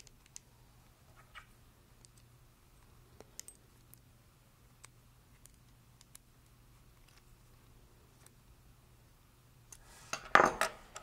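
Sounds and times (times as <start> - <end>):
faint low hum: 0.0 - 11.0
small metal parts clicking: 3.2 - 4.0.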